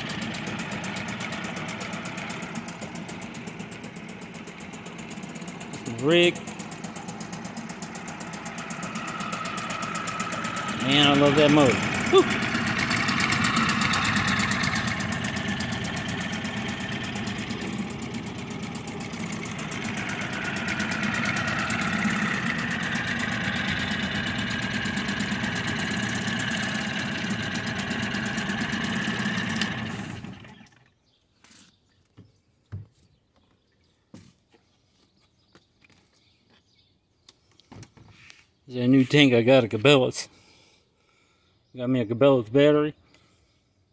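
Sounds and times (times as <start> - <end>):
outboard motor running: 0.0 - 31.0.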